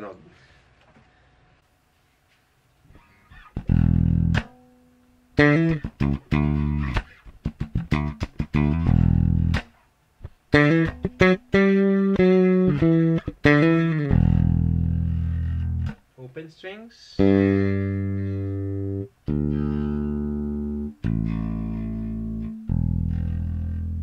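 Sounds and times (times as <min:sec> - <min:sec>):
bass guitar plucked notes: 0:03.3 - 0:04.7, 0:05.4 - 0:16.0, 0:17.2 - 0:24.0.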